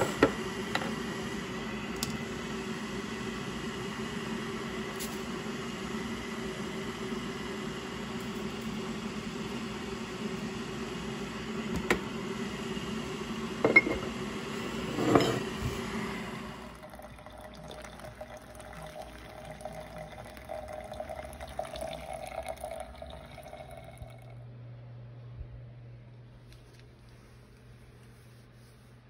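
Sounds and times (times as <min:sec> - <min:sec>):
steady hum: 0:00.0 - 0:29.0
water pouring from kettle: 0:16.6 - 0:24.4.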